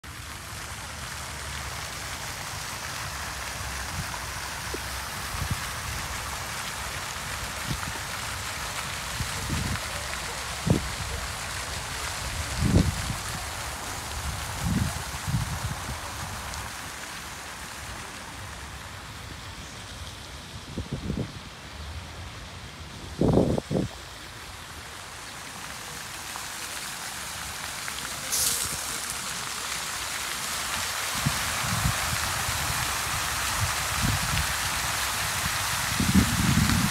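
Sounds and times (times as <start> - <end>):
fountain water splashing: 0.0 - 36.9
short sharp hiss: 28.3 - 29.1.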